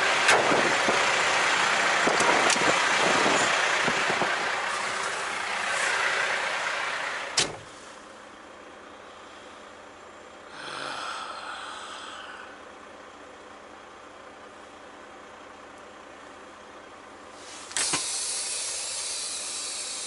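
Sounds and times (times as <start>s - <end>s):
outdoor noise: 0.0s - 20.0s
truck door slamming: 7.2s - 7.8s.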